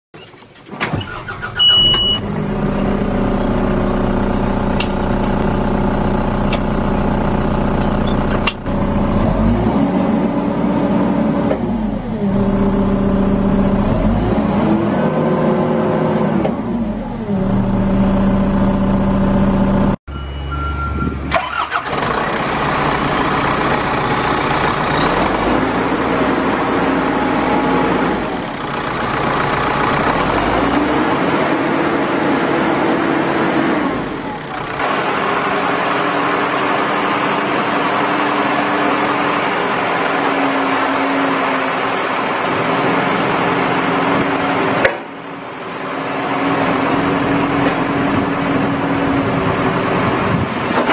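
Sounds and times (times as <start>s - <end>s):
diesel engine starting and revving: 0.5s - 50.9s
short high warning beep: 1.5s - 2.2s, 20.1s - 21.3s.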